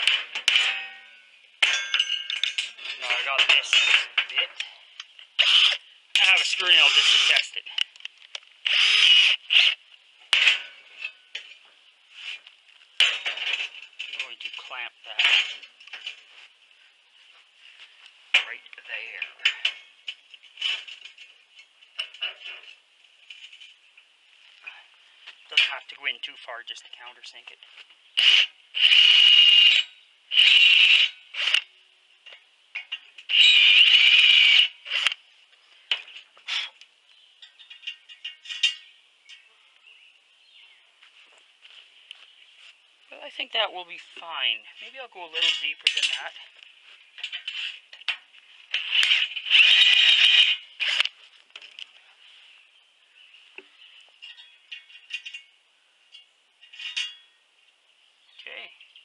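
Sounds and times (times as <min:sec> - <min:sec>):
metal clinks and scrapes: 0:00.0 - 0:26.2, 0:28.2 - 0:36.8, 0:37.4 - 0:39.6, 0:44.0 - 0:52.6, 0:53.7 - 0:57.4
cordless drill drilling into steel: 0:05.4 - 0:05.8, 0:06.8 - 0:07.4, 0:08.7 - 0:09.8, 0:28.2 - 0:31.6, 0:33.3 - 0:35.0, 0:49.0 - 0:51.0.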